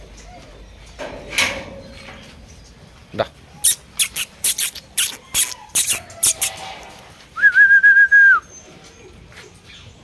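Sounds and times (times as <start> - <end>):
person whistling: 7.4 - 8.4.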